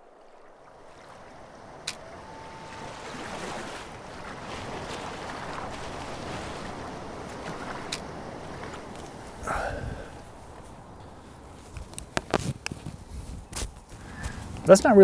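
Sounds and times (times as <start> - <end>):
wind and small waves: 0.0 - 15.0
sharp click: 1.8 - 2.0.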